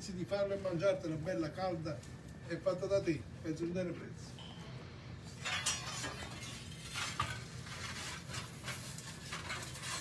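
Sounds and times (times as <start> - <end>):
scraping in pizza oven: 5.2 - 10.0.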